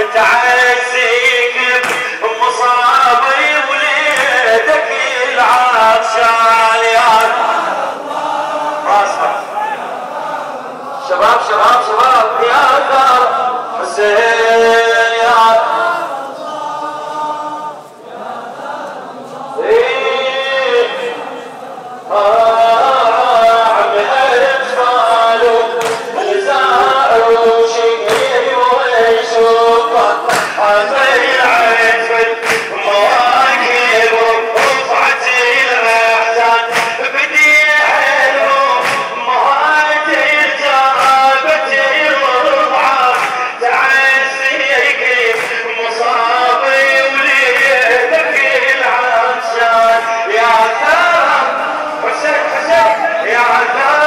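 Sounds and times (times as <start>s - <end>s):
man chanting a lament: 0.0s - 54.0s
collective chest-beating strikes: 30.3s - 30.6s.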